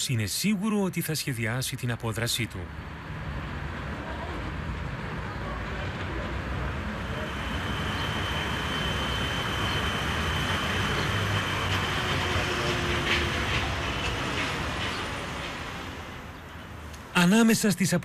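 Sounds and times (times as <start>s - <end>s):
street traffic noise: 0.0s - 18.0s
faint high whine: 7.0s - 12.4s.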